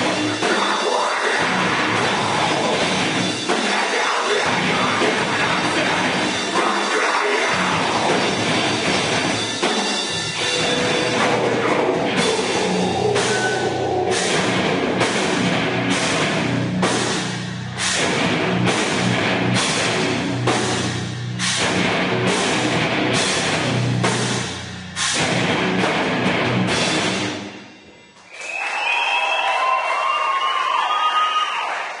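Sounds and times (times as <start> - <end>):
heavy metal band playing live: 0.0 - 27.8
crowd cheering: 10.4 - 15.1, 27.9 - 32.0.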